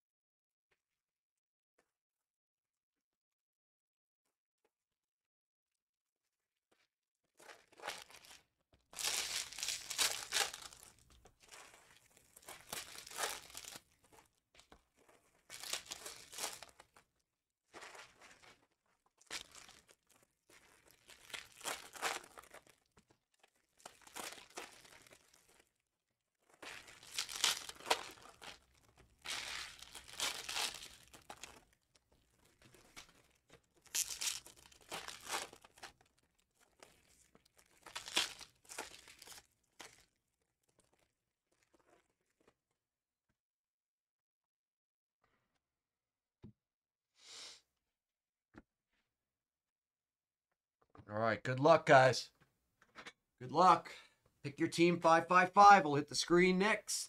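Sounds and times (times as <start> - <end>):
foil wrappers tearing and crinkling: 9.0 - 13.9, 15.5 - 17.0, 17.8 - 25.6, 26.5 - 31.8, 32.4 - 40.1.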